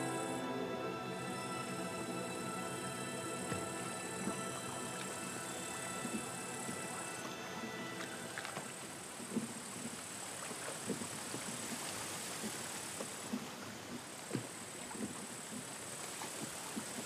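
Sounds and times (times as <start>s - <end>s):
faint steady high hiss: 0.0s - 17.0s.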